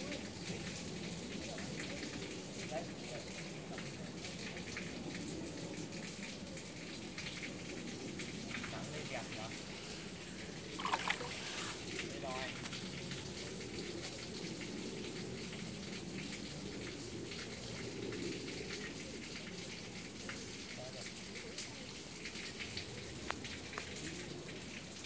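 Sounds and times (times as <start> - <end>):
pond water splashing: 8.4 - 13.9.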